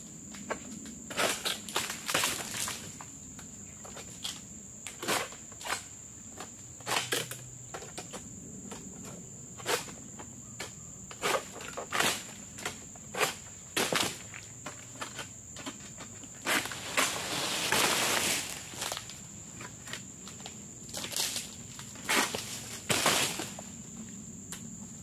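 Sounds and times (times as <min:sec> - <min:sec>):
sickle cutting palm fronds: 0:16.4 - 0:19.2, 0:19.8 - 0:23.7.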